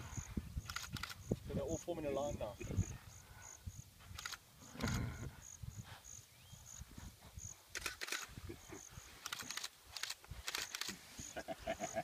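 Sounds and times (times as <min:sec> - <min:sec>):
wind rumble on microphone: 0:00.0 - 0:07.6
insects chirping: 0:00.0 - 0:12.0
sharp clicks: 0:00.6 - 0:01.2, 0:04.1 - 0:05.0, 0:07.7 - 0:08.4, 0:09.2 - 0:11.0.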